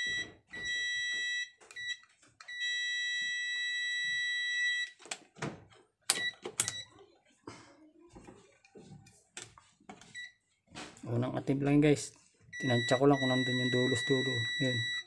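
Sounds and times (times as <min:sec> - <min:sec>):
multimeter beeping: 0:00.0 - 0:05.0, 0:06.1 - 0:06.9, 0:10.1 - 0:10.4, 0:12.5 - 0:15.0.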